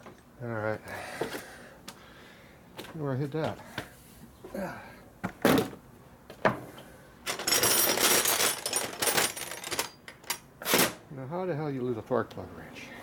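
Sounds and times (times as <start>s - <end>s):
metal tools clinking and rattling: 7.3s - 11.0s.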